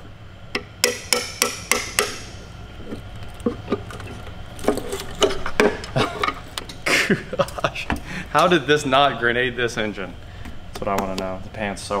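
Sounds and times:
sledgehammer striking steel chisel: 0.6 - 2.4.

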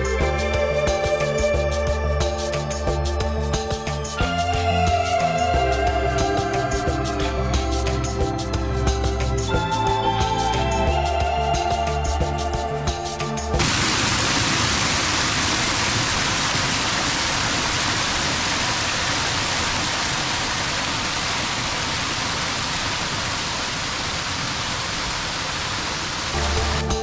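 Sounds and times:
water rushing over weir: 13.6 - 27.0.

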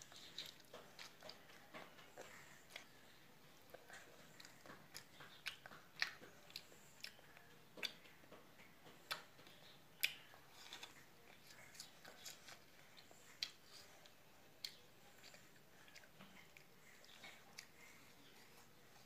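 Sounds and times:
child chewing fruit: 0.0 - 19.0.

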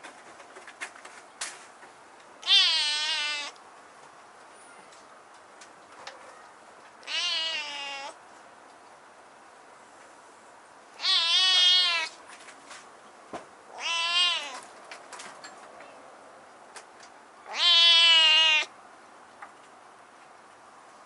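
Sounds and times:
kitten meowing: 2.4 - 3.6, 7.0 - 8.2, 11.0 - 12.2, 13.7 - 14.6, 17.5 - 18.7.

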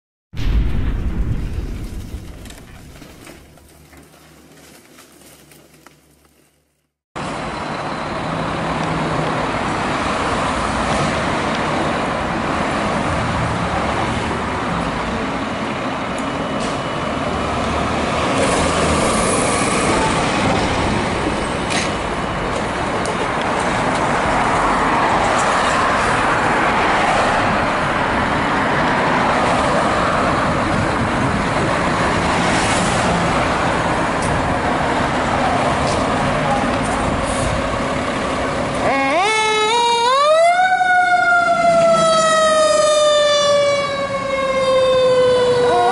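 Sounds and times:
boom: 0.4 - 3.7
fire truck diesel engines running: 7.2 - 45.9.

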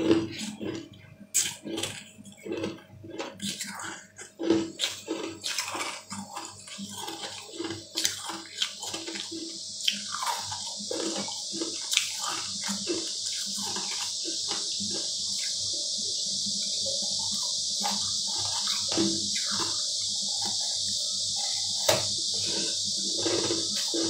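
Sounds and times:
steady rushing hiss: 6.0 - 24.0.

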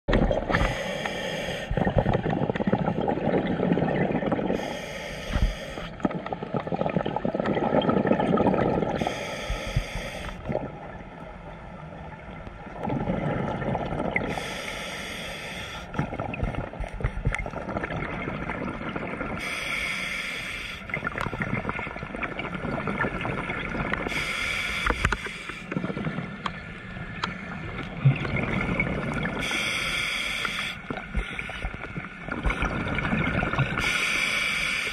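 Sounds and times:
regulator breathing hiss: 0.5 - 1.8, 4.6 - 6.0, 9.0 - 10.4, 14.3 - 16.0, 19.4 - 20.9, 24.1 - 25.7, 29.4 - 31.7, 33.8 - 34.9
bubbles rumbling underwater: 1.7 - 4.7, 5.9 - 9.0, 10.4 - 14.4, 15.9 - 19.4, 20.9 - 24.1, 25.7 - 29.4, 30.9 - 33.8.

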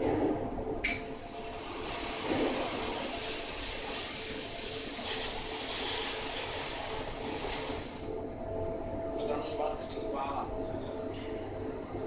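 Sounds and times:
water spray hissing on hot steel: 1.1 - 7.9.

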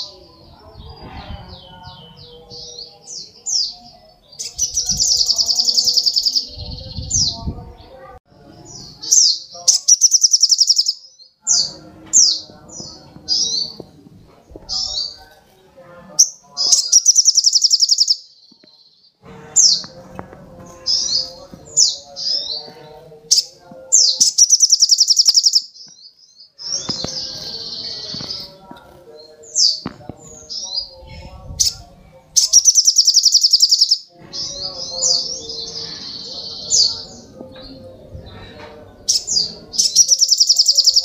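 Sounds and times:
sunbird chirping song: 1.6 - 7.4, 8.7 - 13.8, 16.2 - 19.9, 20.8 - 28.6, 32.4 - 37.8, 38.4 - 41.0
bird buzzy trill: 9.7 - 11.0, 16.2 - 18.2, 24.1 - 25.7, 32.4 - 34.0, 39.1 - 41.0.

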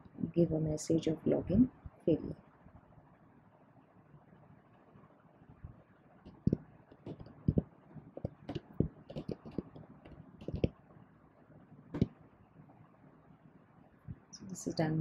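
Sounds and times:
computer keyboard typing: 6.3 - 7.6, 8.2 - 10.7.

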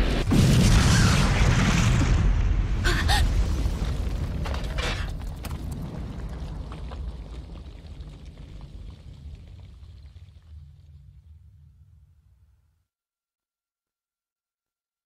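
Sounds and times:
deep rumbling explosion: 0.0 - 12.2.

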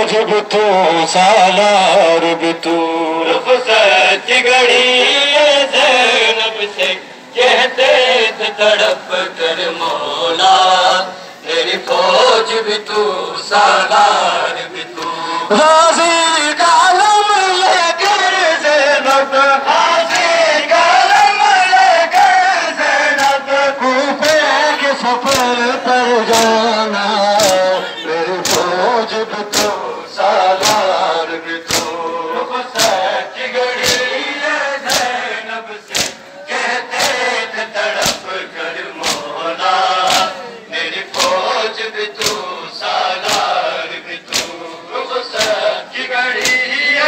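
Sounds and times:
men chanting in unison: 0.0 - 47.0
hands slapping bare chests: 23.2 - 23.4, 24.2 - 24.5, 25.3 - 25.5, 26.3 - 26.6, 27.4 - 27.6, 28.4 - 28.7, 29.5 - 29.8, 30.6 - 30.8, 31.7 - 32.0, 32.8 - 33.0, 33.8 - 34.1, 34.8 - 35.1, 35.9 - 36.2, 37.0 - 37.2, 38.0 - 38.3, 39.0 - 39.3, 40.0 - 40.3, 41.1 - 41.4, 42.2 - 42.4, 43.2 - 43.6, 44.3 - 44.6, 45.3 - 45.6, 46.3 - 46.6.

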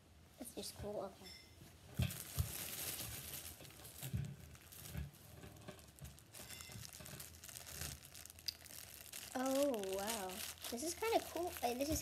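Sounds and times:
thumps: 1.8 - 8.2
plastic bag crinkling: 1.9 - 12.0.

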